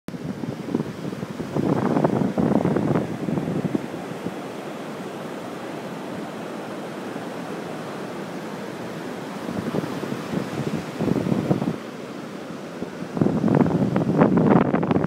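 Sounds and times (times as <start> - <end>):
wind buffeting microphone: 0.1 - 6.2, 8.7 - 11.9, 12.8 - 15.0
ocean surf washing on beach: 0.1 - 15.0.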